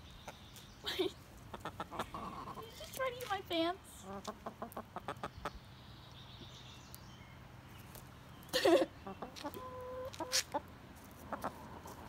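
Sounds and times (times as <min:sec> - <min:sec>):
hen clucking: 0:01.4 - 0:02.8, 0:04.0 - 0:05.6, 0:09.0 - 0:11.7.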